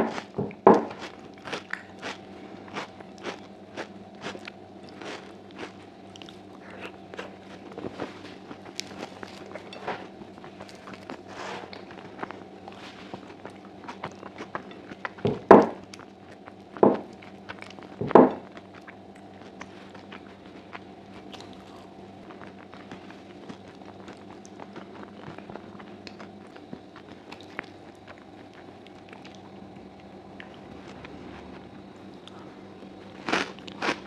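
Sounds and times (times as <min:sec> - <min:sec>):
faint steady hum: 0:00.0 - 0:34.0
close chewing with wet clicks: 0:00.7 - 0:09.8, 0:10.4 - 0:30.6
mouth smacks: 0:01.7 - 0:01.9.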